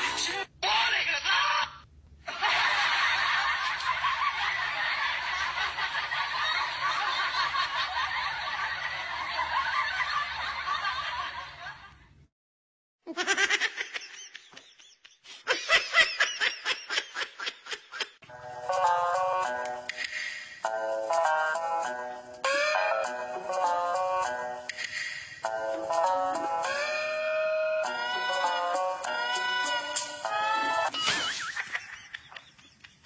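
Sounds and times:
group of people laughing: 0:02.3 - 0:11.9, 0:13.1 - 0:18.2, 0:31.3 - 0:33.0
music: 0:18.3 - 0:31.2.

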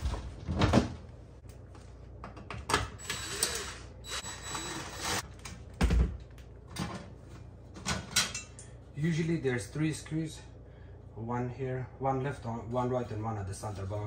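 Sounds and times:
cordless drill whirring: 0:03.0 - 0:05.2.

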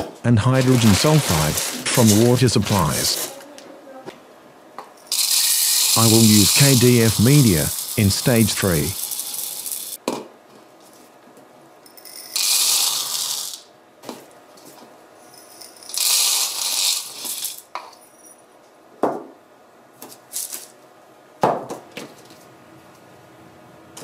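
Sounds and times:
granules rattling through funnel: 0:05.1 - 0:09.9.

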